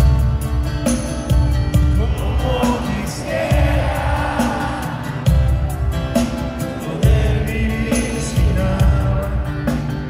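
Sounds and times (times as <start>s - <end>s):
live pop-rock band playing: 0.0s - 10.0s
person singing: 6.8s - 9.6s.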